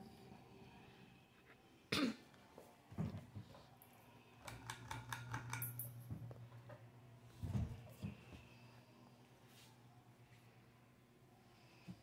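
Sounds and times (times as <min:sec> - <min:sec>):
ceiling fan humming: 0:00.0 - 0:12.0
short cough: 0:01.9 - 0:02.2.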